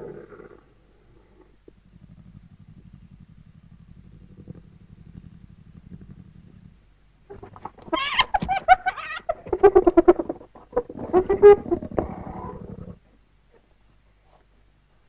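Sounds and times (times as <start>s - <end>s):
hyenas cackling and screeching: 7.3s - 12.8s.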